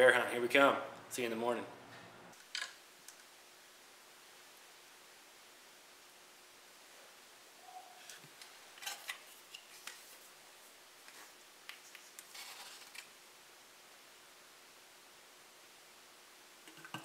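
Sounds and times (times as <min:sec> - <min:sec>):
rustling scrape: 0:11.1 - 0:13.1.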